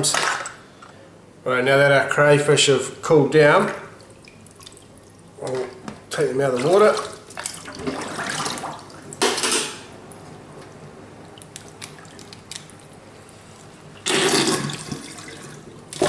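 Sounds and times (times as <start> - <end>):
water splashing in a steel sink: 3.6 - 9.6, 13.9 - 16.0.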